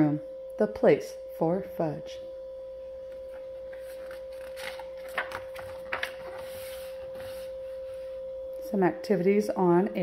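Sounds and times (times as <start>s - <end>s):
book pages rustling: 3.1s - 8.1s.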